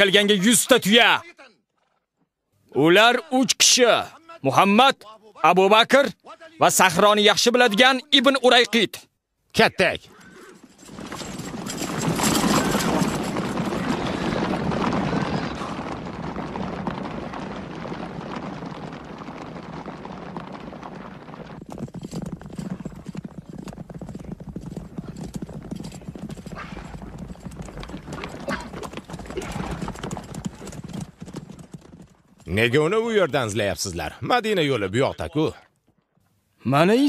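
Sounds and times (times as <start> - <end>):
horses galloping: 9.9 - 33.8
horse neighing: 10.0 - 15.8, 26.0 - 27.1, 27.8 - 30.8.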